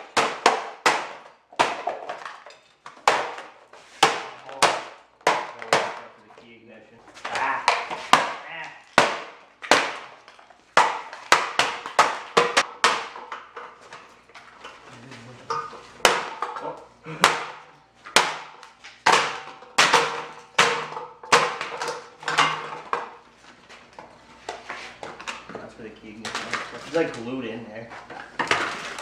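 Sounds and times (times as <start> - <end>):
hammer knocking plastic panels: 10.8 - 13.7.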